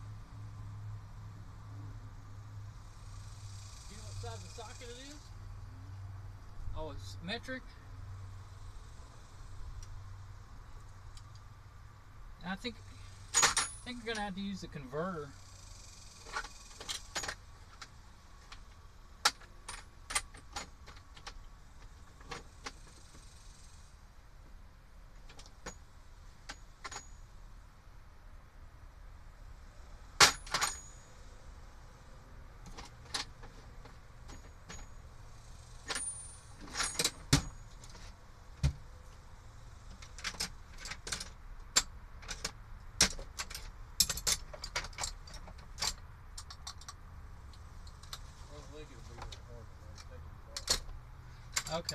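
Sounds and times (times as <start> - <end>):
metal tools clinking: 12.6 - 15.2, 30.2 - 31.1, 34.2 - 38.0.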